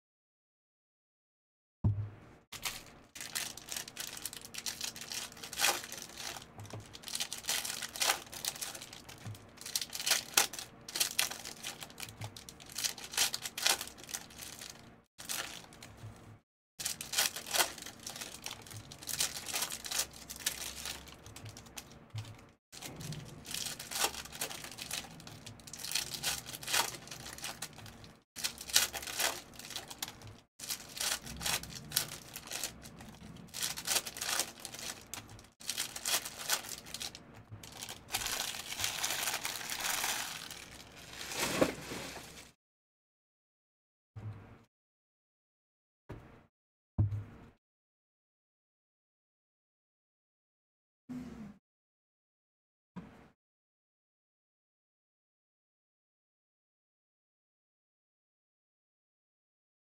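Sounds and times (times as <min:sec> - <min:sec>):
foil wrappers crinkling and ripping: 0:02.6 - 0:16.0, 0:16.8 - 0:42.5.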